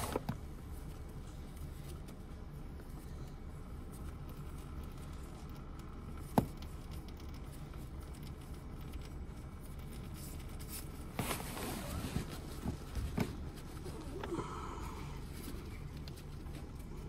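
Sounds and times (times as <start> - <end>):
steady low hum: 0.0 - 17.0
handling rustling and knocks: 10.2 - 14.3.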